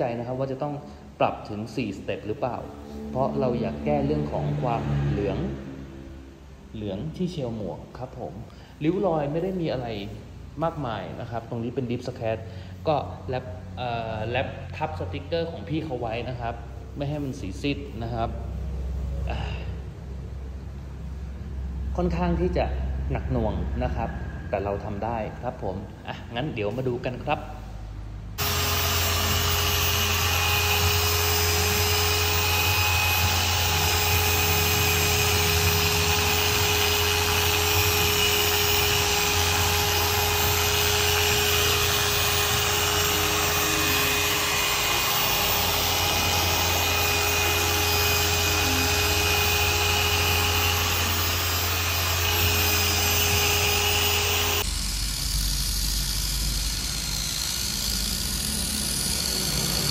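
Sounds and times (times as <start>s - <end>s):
electric polisher whirring: 28.4s - 59.9s.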